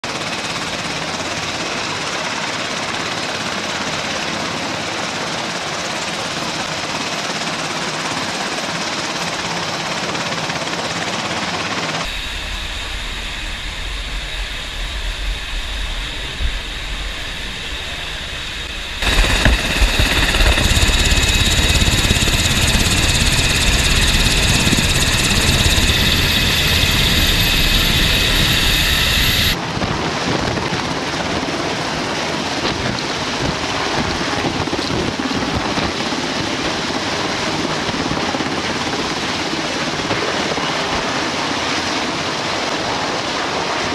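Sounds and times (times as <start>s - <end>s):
helicopter rotor beat: 0.0s - 43.9s
turbine engine whine: 11.2s - 29.8s.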